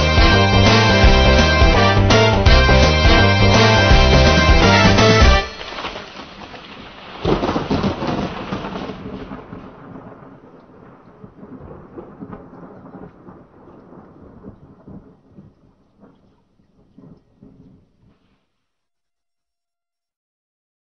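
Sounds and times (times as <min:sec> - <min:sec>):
thunder rumbling: 0:00.0 - 0:18.3
rain: 0:03.1 - 0:18.6.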